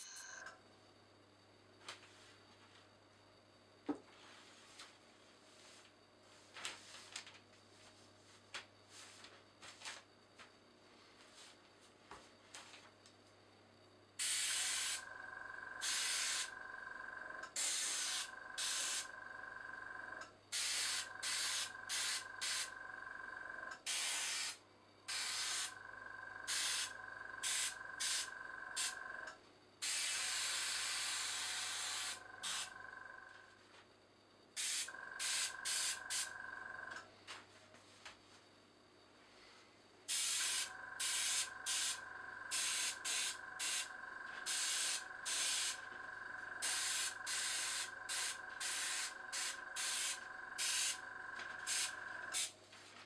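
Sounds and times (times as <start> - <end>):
small compressor whine: 0.0 - 53.0
airbrush spraying hiss: 14.2 - 15.0, 15.8 - 16.5, 17.6 - 19.1, 20.6 - 22.7, 23.9 - 25.7, 26.5 - 29.0, 40.1 - 43.9, 44.5 - 45.8, 46.6 - 51.0, 51.6 - 52.5.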